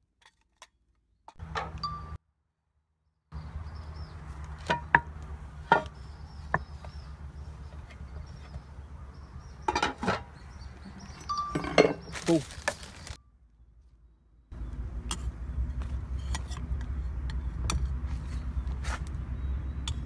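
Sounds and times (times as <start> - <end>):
metal cookware and plates clinking: 11.3 - 12.1.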